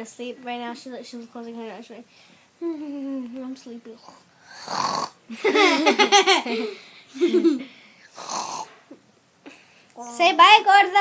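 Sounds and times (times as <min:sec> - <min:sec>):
child laughing: 0:05.3 - 0:07.7.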